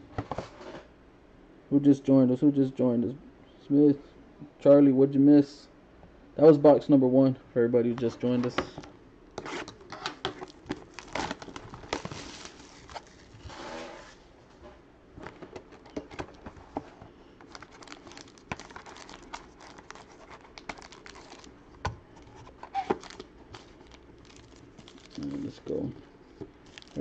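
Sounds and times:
plastic wrapping crinkling: 9.6 - 14.2, 15.2 - 27.0.

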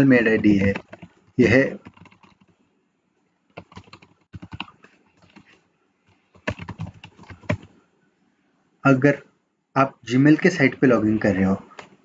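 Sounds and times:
typing on computer keyboard: 0.4 - 2.6, 3.6 - 7.7.

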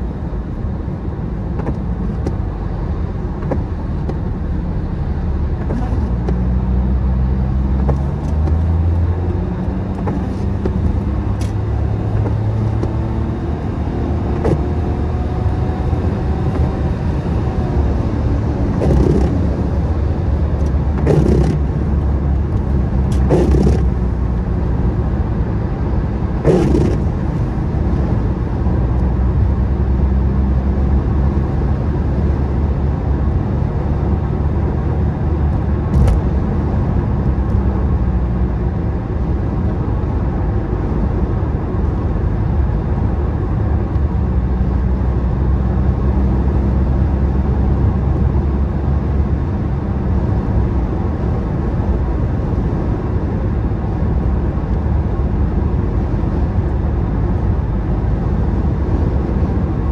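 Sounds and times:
car engine and road noise: 0.0 - 59.9
windscreen wipers swishing: 1.3 - 4.6, 5.5 - 15.2, 18.5 - 29.1, 35.4 - 38.3.

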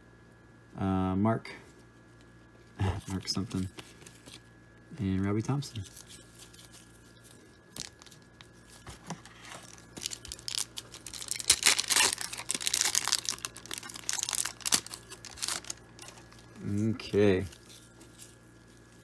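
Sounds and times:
foil wrapper tearing and crinkling: 5.8 - 19.0.

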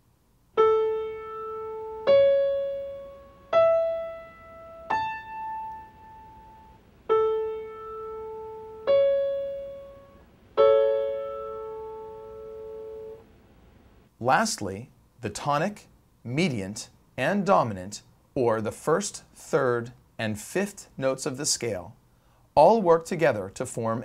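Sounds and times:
piano notes: 0.6 - 13.3.

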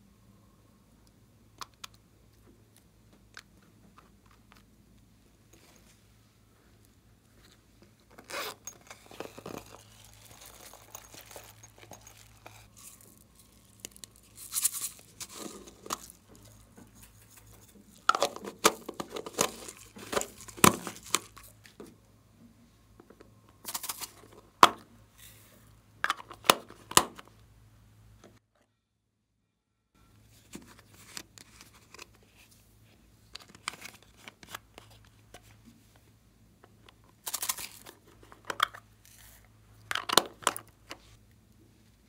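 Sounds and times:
plastic packaging crinkling: 8.1 - 21.7, 37.2 - 38.3
sprinkles shaken from plastic tube: 9.8 - 16.6.

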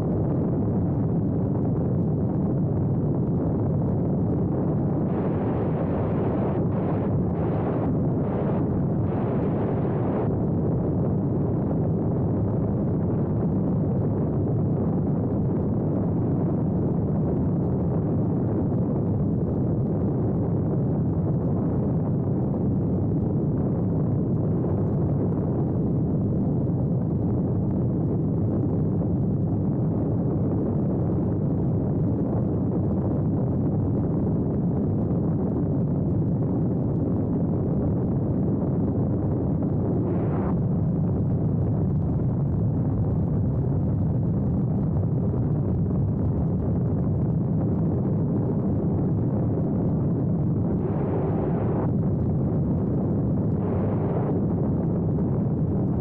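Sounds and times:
aircraft engine and propeller rumble: 0.0 - 56.0
rushing air: 50.4 - 52.4.

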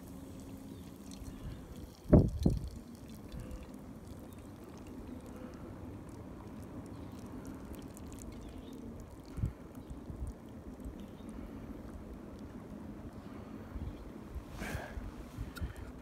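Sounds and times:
water pouring into metal cup: 0.0 - 10.4.

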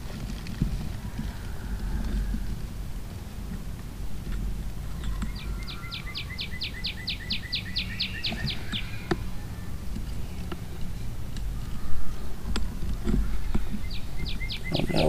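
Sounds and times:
low outdoor rumble: 0.0 - 15.0
songbird trilling: 4.9 - 9.2, 13.6 - 15.0.

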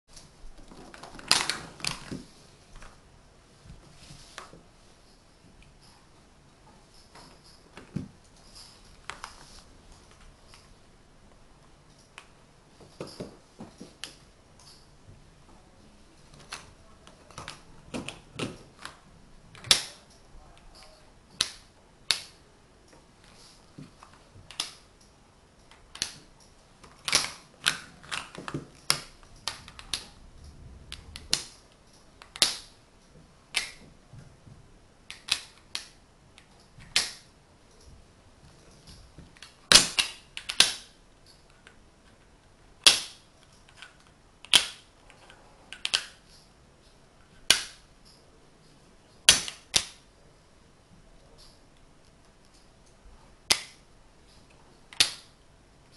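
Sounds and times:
wooden blocks clicking together: 16.3 - 22.4, 24.0 - 24.8, 25.7 - 30.2, 32.2 - 32.8, 33.5 - 33.9, 35.1 - 37.3, 38.9 - 42.2, 42.8 - 46.4, 47.4 - 48.2, 49.3 - 50.0, 53.5 - 53.8, 54.9 - 55.3.

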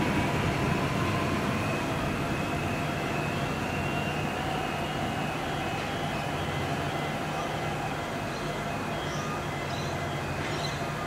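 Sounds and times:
faint whining tones: 0.0 - 11.0
train rumbling: 0.0 - 11.0.

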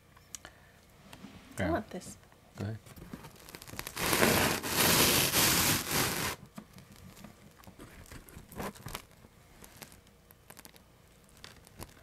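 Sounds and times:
faint clicks and crackles: 2.9 - 4.9, 6.4 - 12.0
cardboard box rustling and scraping: 3.9 - 6.4.

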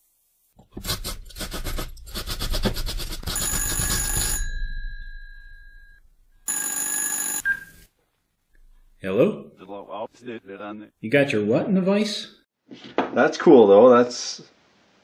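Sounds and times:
telephone bell ringing: 3.3 - 7.9.

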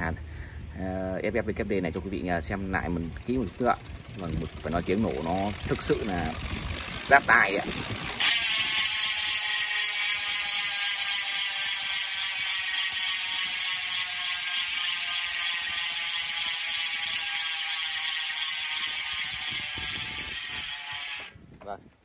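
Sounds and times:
bicycle freehub ratchet buzzing: 2.4 - 21.4.

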